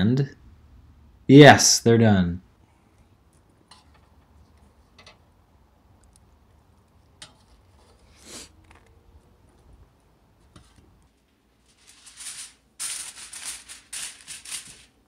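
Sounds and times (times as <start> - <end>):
aluminium foil crinkling: 11.1 - 15.0.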